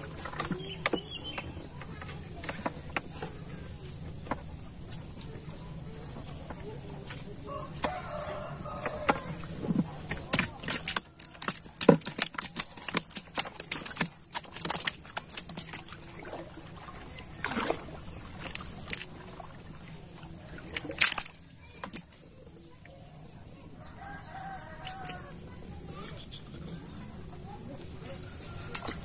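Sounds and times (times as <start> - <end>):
water dripping and splashing: 6.2 - 23.0.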